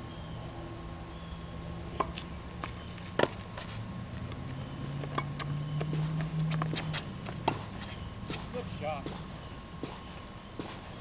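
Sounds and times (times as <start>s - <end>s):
tennis ball pops off rackets: 5.0s - 10.9s.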